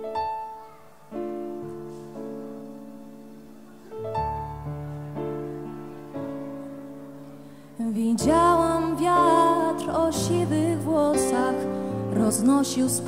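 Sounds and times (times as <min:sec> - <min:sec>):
soft piano chords: 0:00.0 - 0:13.0
young woman singing ballad: 0:07.8 - 0:13.0.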